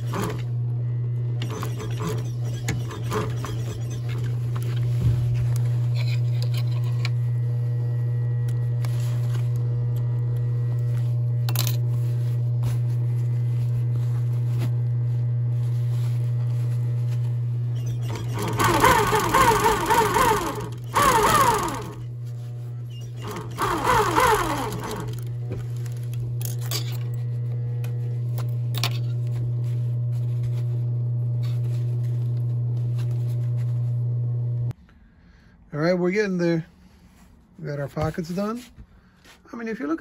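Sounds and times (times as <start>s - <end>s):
sewing machine stitching leather: 0.0s - 0.6s, 1.2s - 4.9s, 17.7s - 22.2s, 22.9s - 27.2s.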